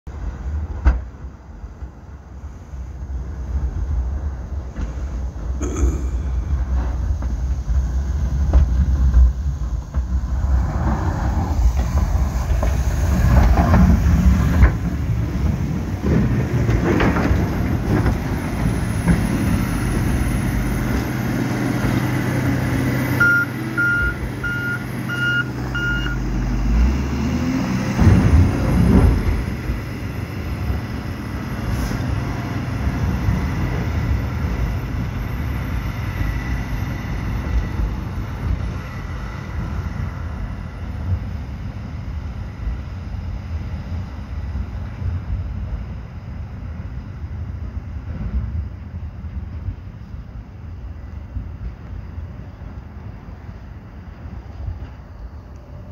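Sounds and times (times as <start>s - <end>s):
diesel engine running: 0.1s - 55.9s
reversing alarm beeps: 23.2s - 26.2s.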